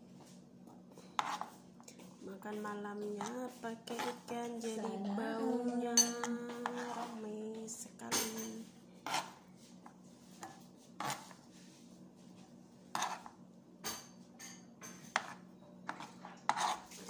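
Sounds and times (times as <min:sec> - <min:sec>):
spoon scraping a cutting board: 0:01.1 - 0:01.6, 0:03.2 - 0:04.3, 0:06.5 - 0:07.2, 0:09.0 - 0:11.6, 0:12.9 - 0:13.4, 0:14.9 - 0:17.0.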